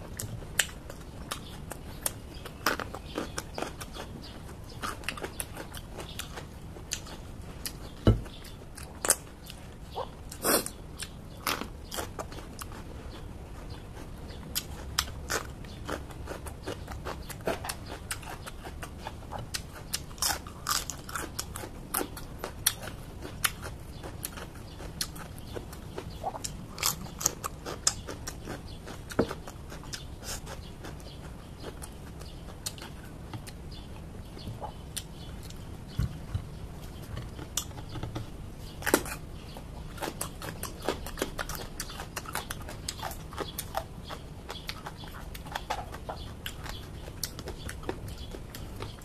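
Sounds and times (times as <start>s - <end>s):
crunchy vegetable chewing: 0.0s - 49.0s
low steady hum: 0.0s - 49.0s.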